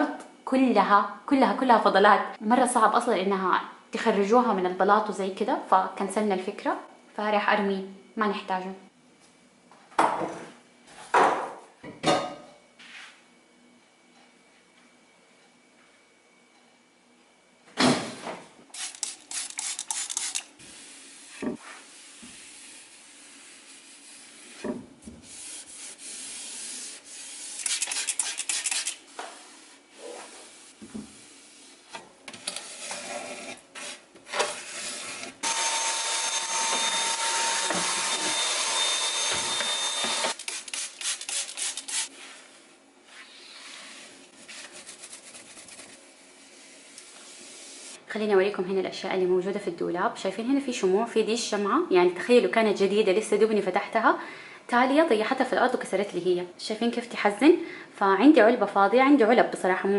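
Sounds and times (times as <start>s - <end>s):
cloth rubbing a shelf: 25.2s - 27.7s, 29.3s - 31.9s, 41.9s - 47.9s.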